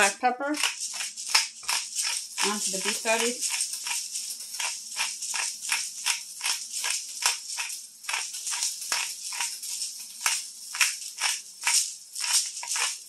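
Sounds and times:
pepper container rattling: 0.0 - 13.0.

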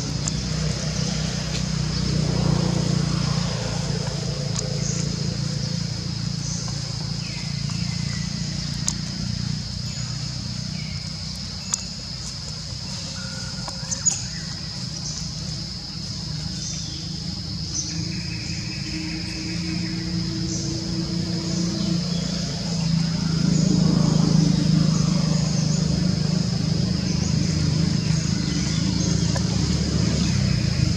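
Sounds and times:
low hum: 0.0 - 30.9.

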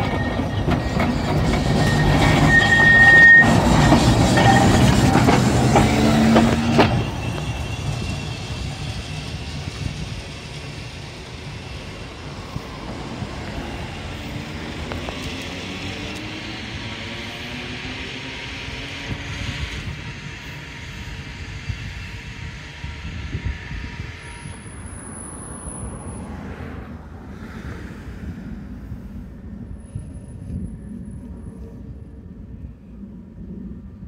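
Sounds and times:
high squeal of tram: 0.0 - 26.8, 29.3 - 32.6
tram running on rails: 0.0 - 34.0.

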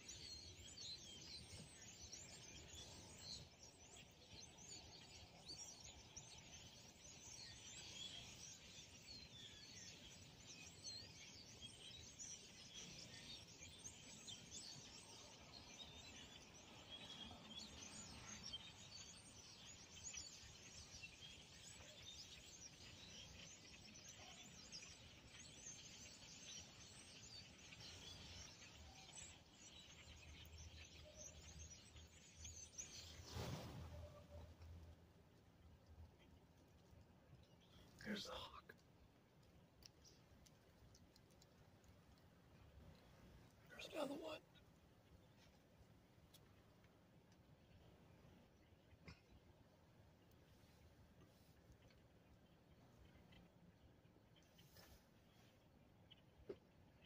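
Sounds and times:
flock of starlings chirping: 0.0 - 34.6, 37.5 - 38.8, 42.6 - 45.7.

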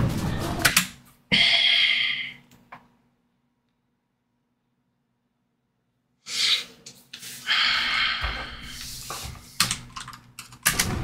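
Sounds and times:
man breathing hard: 1.3 - 2.4, 6.2 - 9.6
long hissing sigh: 6.3 - 9.1.

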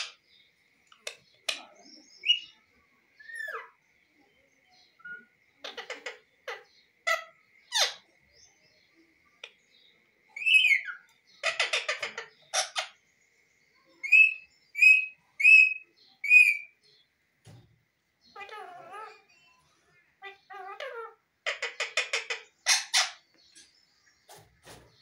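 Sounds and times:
parakeet calling: 5.0 - 8.2, 10.4 - 13.0, 14.0 - 16.8, 18.3 - 23.7.

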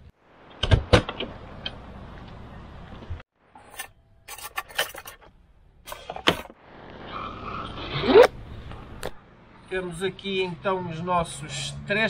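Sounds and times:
sharp clicks and knocks: 0.5 - 2.4.

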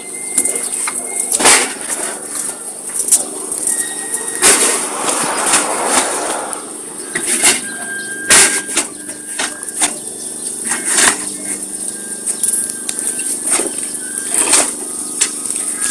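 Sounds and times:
paving bricks clacking together: 7.0 - 15.9.

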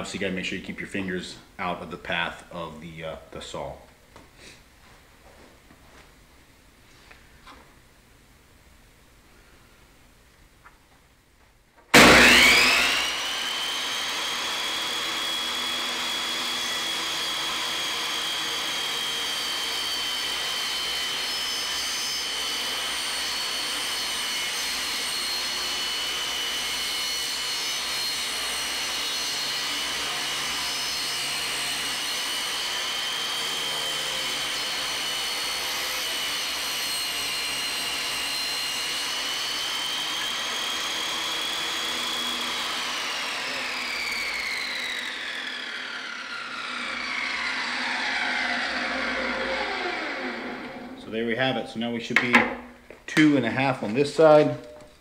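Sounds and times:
table saw motor whine: 11.9 - 51.6.

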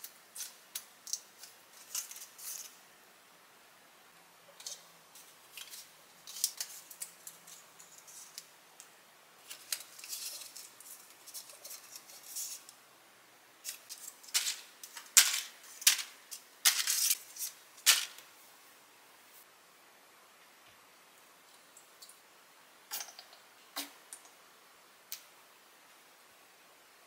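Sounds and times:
rice paper crinkling: 0.3 - 2.8, 4.6 - 8.5, 9.4 - 12.8.

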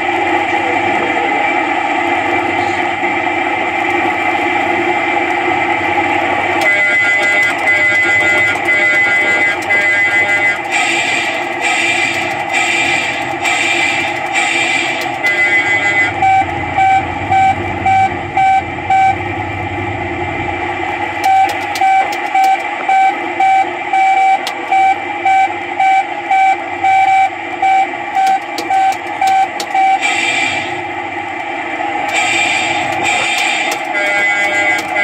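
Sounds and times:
kiddie ride running: 0.0 - 35.0
electronic beeping: 6.6 - 19.2, 21.2 - 30.8.

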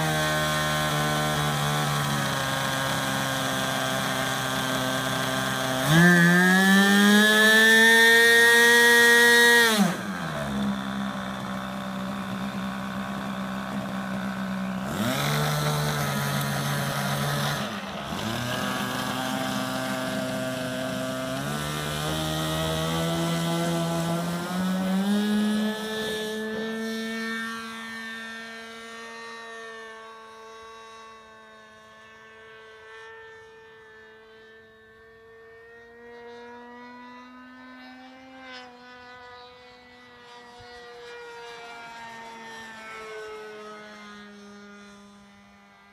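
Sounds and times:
model airplane engine buzzing: 0.0 - 45.9.

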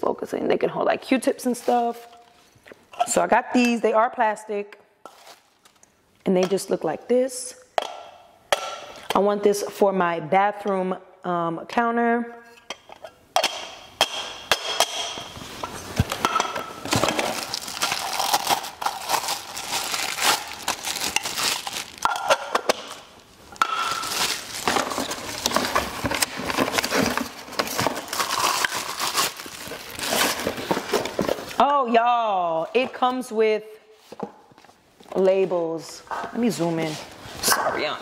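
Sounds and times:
packaging crinkling and rustling: 5.1 - 5.9, 16.8 - 31.6.

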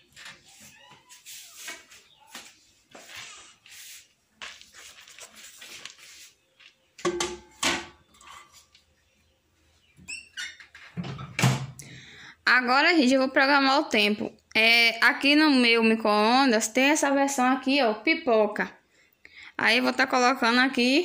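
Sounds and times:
paper rustling and scraping: 0.0 - 6.9.

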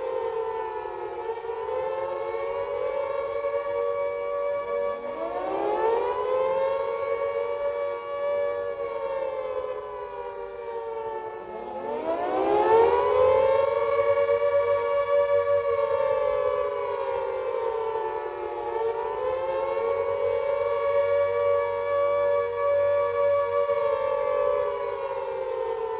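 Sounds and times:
air raid siren wailing: 0.0 - 25.9.

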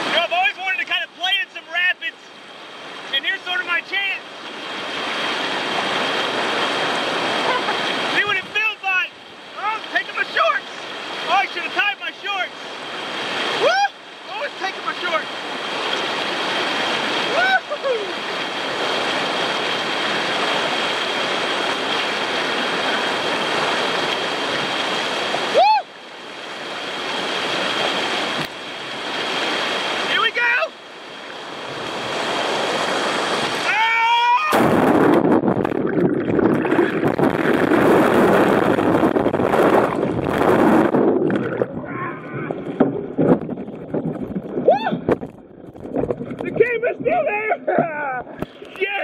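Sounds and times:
whitewater rapids rushing: 0.0 - 44.0
person yelling: 13.6 - 14.6, 17.3 - 18.2, 25.5 - 25.9, 33.6 - 34.6, 41.8 - 42.6, 44.7 - 45.1, 46.6 - 47.8
muffled underwater churning: 34.5 - 48.8
bubbles: 34.6 - 46.6.

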